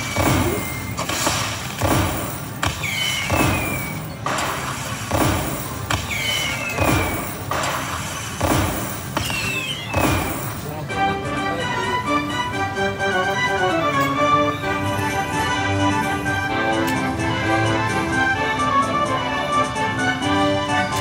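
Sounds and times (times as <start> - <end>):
steady thudding beat: 0.0 - 6.2, 6.8 - 10.6
falling whistle-like tone: 2.8 - 4.1, 6.1 - 7.2, 9.2 - 10.2.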